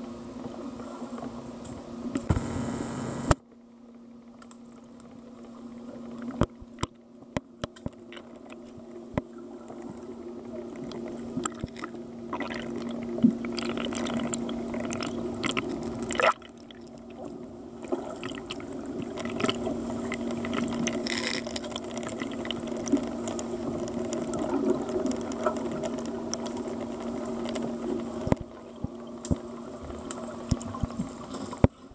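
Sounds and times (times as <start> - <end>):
underwater low hum: 0.0 - 31.9
rushing bubbling water: 7.9 - 31.9.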